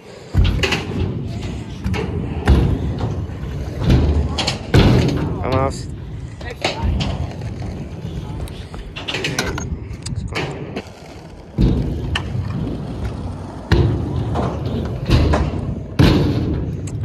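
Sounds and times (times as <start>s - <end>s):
scooter wheels rolling on ramp: 0.0s - 17.0s
scooter thudding on ramp: 0.3s - 5.4s, 10.4s - 16.8s.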